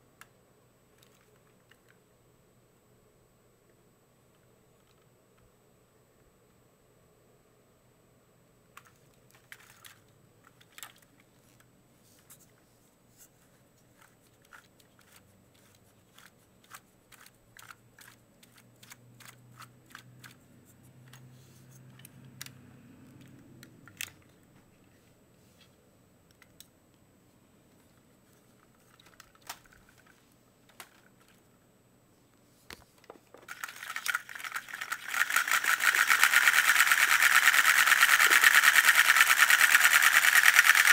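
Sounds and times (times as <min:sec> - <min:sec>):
toy engine plastic clatter: 0:08.8 - 0:11.6, 0:14.0 - 0:20.4, 0:28.6 - 0:31.4, 0:33.3 - 0:40.9
plastic parts clicking: 0:08.8 - 0:11.7, 0:13.9 - 0:20.4, 0:23.2 - 0:24.4, 0:28.6 - 0:31.4, 0:33.0 - 0:40.9.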